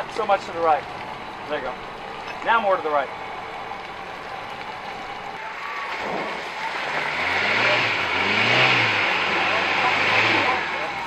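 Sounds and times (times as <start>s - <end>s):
engine revving: 5.1s - 11.0s.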